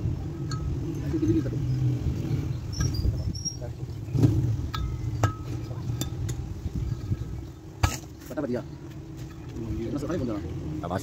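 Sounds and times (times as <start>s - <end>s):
steady low rumble: 0.0s - 8.2s.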